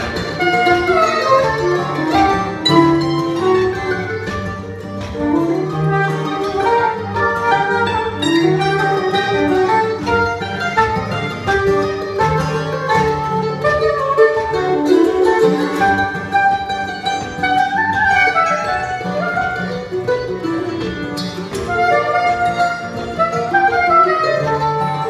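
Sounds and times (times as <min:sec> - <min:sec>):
acoustic guitar picking: 0:00.0 - 0:25.0
mandolin picking: 0:00.0 - 0:25.0
saxophone melody: 0:00.0 - 0:25.0.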